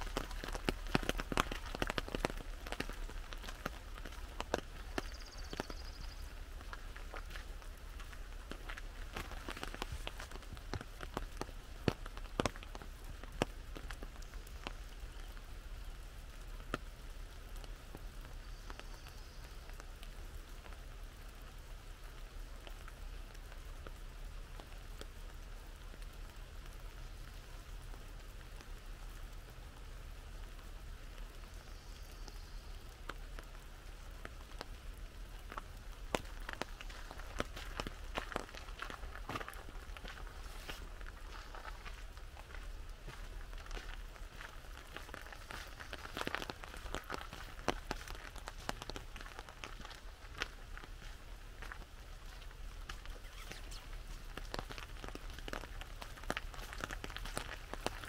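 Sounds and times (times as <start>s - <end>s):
raindrop taps: 0.0s - 15.4s, 32.9s - 58.0s
rain on an umbrella: 0.0s - 58.0s.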